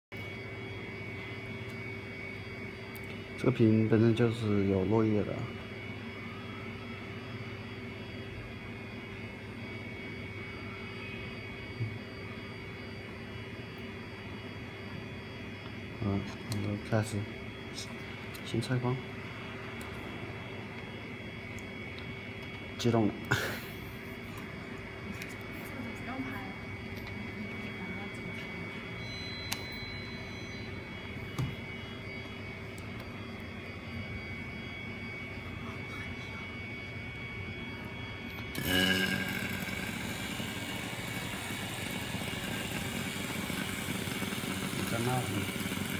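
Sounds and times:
machinery hum and hiss: 0:00.1 - 0:45.9
held tones: 0:29.0 - 0:33.7, 0:38.4 - 0:45.9.

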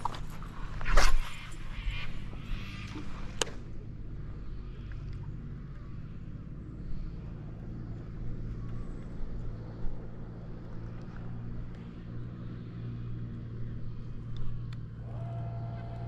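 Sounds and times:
high whine: 0:15.0 - 0:16.0.

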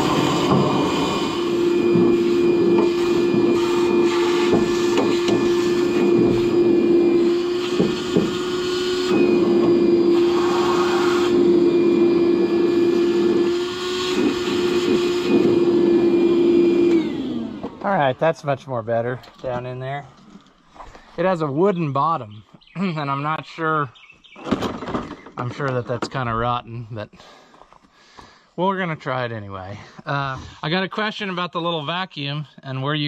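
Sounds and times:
handheld vacuum whining: 0:00.0 - 0:18.2.

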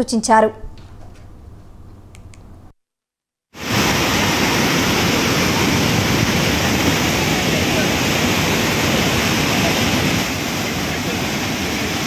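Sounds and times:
floodwater rushing roar: 0:03.6 - 0:12.0.

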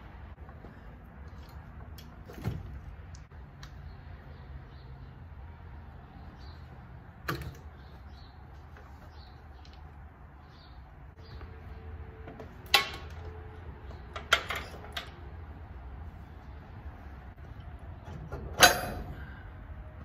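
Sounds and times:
metal clanks and knocks: 0:12.3 - 0:15.2, 0:18.0 - 0:19.4.

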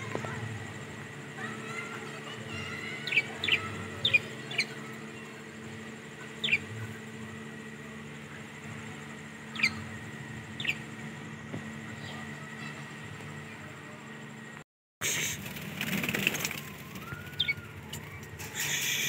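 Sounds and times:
steady low hum: 0:00.0 - 0:19.0
budgerigars chirping: 0:02.6 - 0:04.8, 0:09.5 - 0:09.9, 0:10.6 - 0:10.8.

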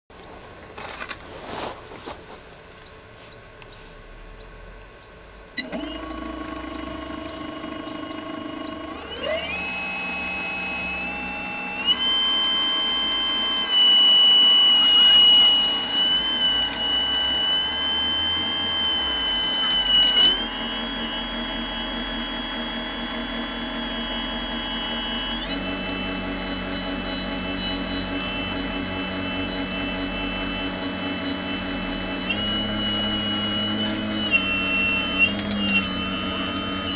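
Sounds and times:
electric motors whining: 0:03.6 - 0:36.9.

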